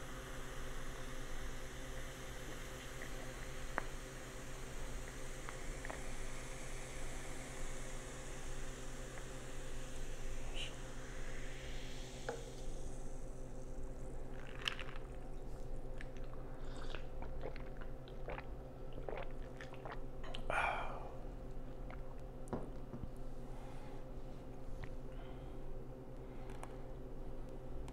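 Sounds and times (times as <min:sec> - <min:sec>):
low electrical hum: 0:00.0 - 0:27.9
soda fizzing over ice: 0:00.3 - 0:18.3
sips and swallows: 0:14.2 - 0:22.3.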